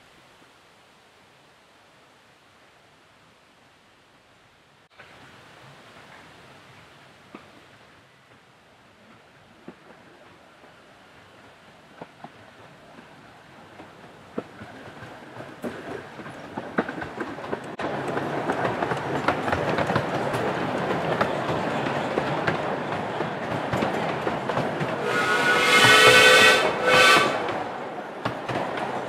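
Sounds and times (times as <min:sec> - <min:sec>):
train wheels clicking over rail joints: 0:11.4 - 0:29.0
steam locomotive whistle: 0:25.0 - 0:27.6.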